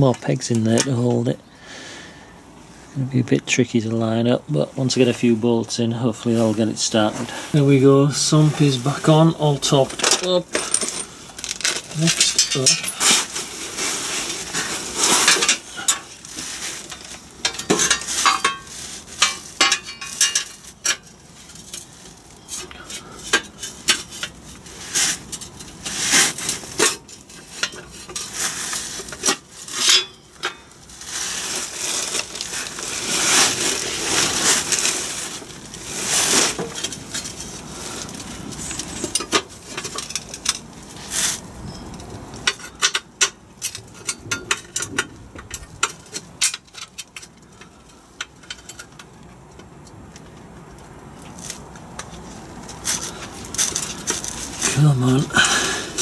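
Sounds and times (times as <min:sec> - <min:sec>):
metal plate clinking and scraping: 0:08.6 - 0:49.1.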